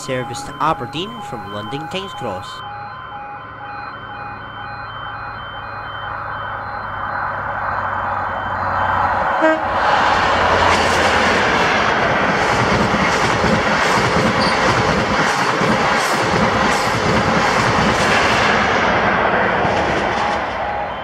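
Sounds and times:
repeating electronic beeps: 0:00.0 - 0:09.4
diesel train engine drone: 0:00.0 - 0:21.0
rushing wheel and rail noise: 0:00.0 - 0:21.0
train horn toot: 0:09.3 - 0:09.9.

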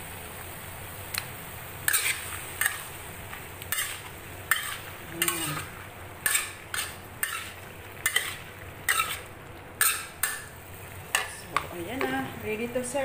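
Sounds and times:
stir-fry sizzling: 0:00.0 - 0:13.0
metal spatula scraping wok: 0:01.8 - 0:03.0, 0:03.7 - 0:10.5.

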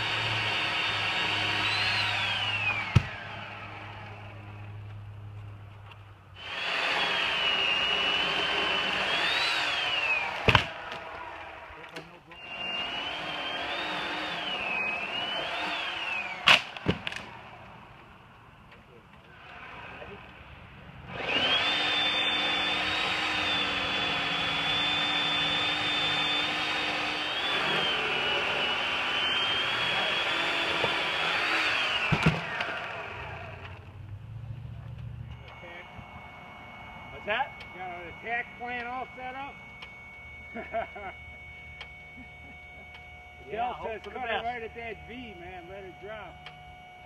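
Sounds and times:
chainsaw cutting and idling: 0:00.0 - 0:04.7, 0:06.4 - 0:17.7, 0:21.0 - 0:34.0.

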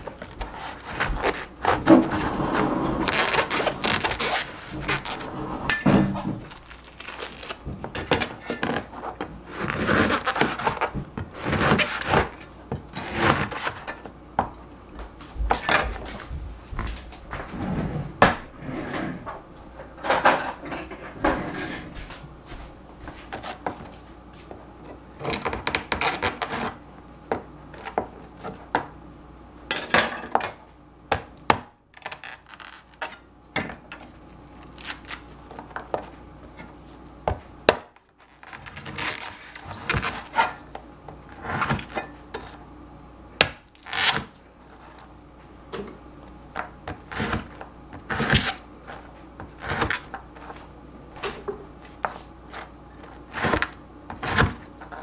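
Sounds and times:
bread crust crackling: 0:03.0 - 0:05.2, 0:06.4 - 0:08.1, 0:31.8 - 0:33.4, 0:34.1 - 0:37.2, 0:37.9 - 0:41.9.

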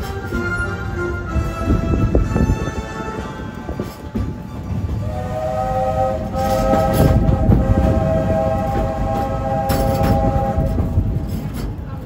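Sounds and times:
train running noise: 0:00.0 - 0:12.0
steam locomotive whistle: 0:05.0 - 0:11.2.

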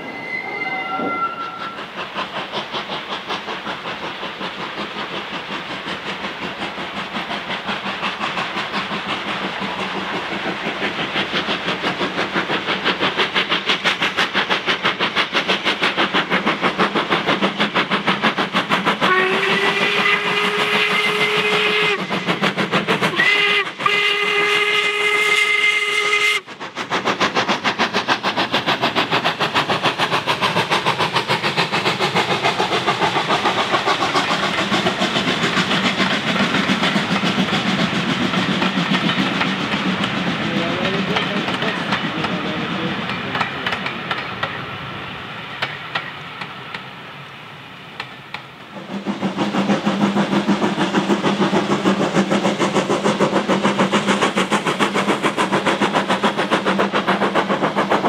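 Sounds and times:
steam locomotive whistle: 0:00.0 - 0:01.9, 0:19.0 - 0:22.1, 0:23.1 - 0:26.5
steam locomotive chuffing: 0:00.0 - 0:58.0.

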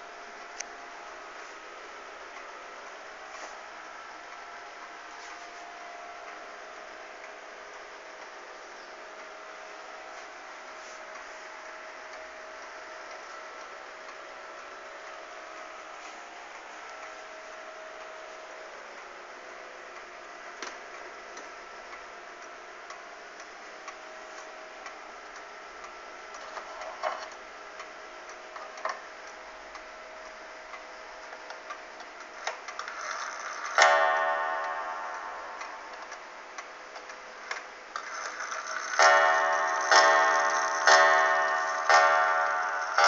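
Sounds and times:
clock ticks and clicks: 0:20.6 - 0:43.0
clock gong strike ringing: 0:33.1 - 0:36.8, 0:38.0 - 0:43.0.

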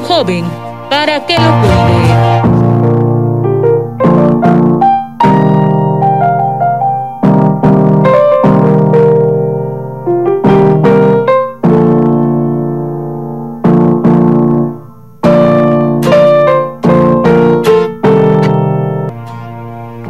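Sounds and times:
slow piano music: 0:00.0 - 0:20.0.

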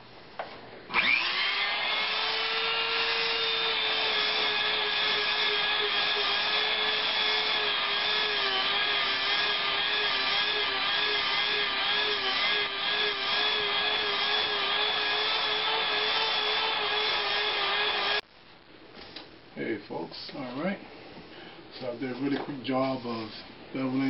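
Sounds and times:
power tool whining: 0:00.9 - 0:18.2.

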